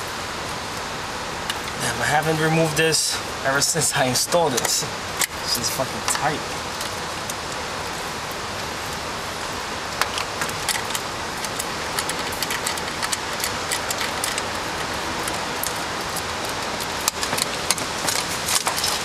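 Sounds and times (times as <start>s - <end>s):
rain hissing: 0.0s - 19.0s
hand tools clicking on metal: 10.0s - 19.0s.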